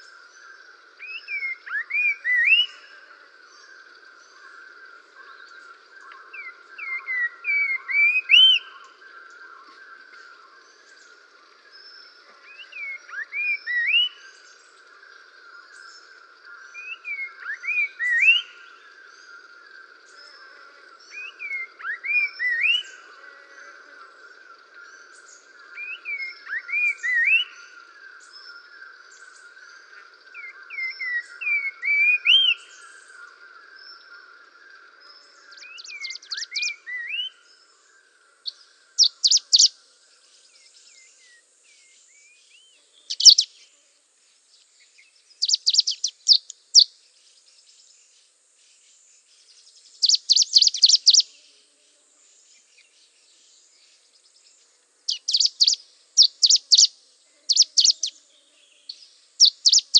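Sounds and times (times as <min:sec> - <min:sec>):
background bird chorus: 0:00.0 - 0:59.9
rapid high bird trills: 0:39.0 - 0:39.7, 0:43.1 - 0:43.5, 0:45.4 - 0:46.9, 0:50.0 - 0:51.3, 0:55.1 - 0:56.9, 0:57.5 - 0:58.1, 0:59.4 - 0:59.9
short rising bird chirps: 0:39.0 - 0:39.7, 0:43.1 - 0:43.6, 0:45.3 - 0:46.9, 0:49.9 - 0:51.3, 0:55.1 - 0:56.9, 0:57.5 - 0:58.1, 0:58.9 - 0:59.9.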